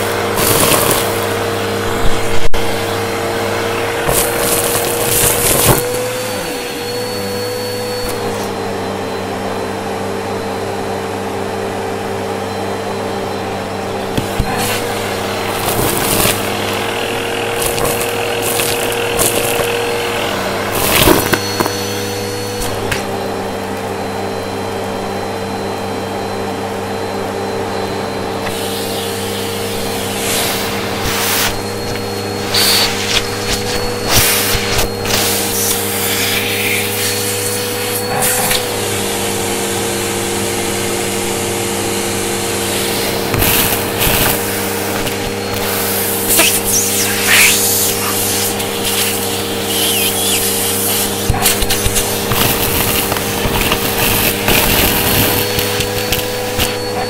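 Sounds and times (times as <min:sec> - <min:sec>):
vacuum cleaner motor humming: 0:00.0 - 0:57.0
debris rattling up a hose: 0:00.1 - 0:01.4, 0:15.5 - 0:20.0.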